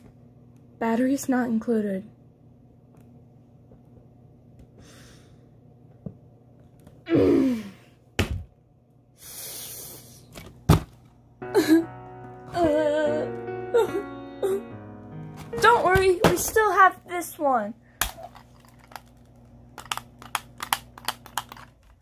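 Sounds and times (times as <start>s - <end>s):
person sighing: 7.1s - 8.0s
music: 11.4s - 17.0s.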